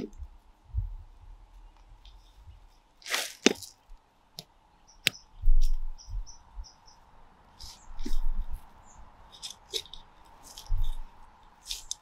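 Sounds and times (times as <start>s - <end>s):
trowel scraping soil: 3.0s - 3.8s, 9.3s - 12.0s.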